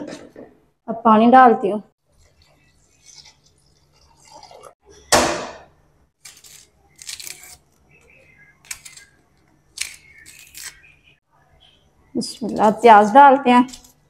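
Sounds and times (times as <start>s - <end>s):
onion skin crackling and scraping: 6.2s - 11.2s, 12.2s - 14.0s.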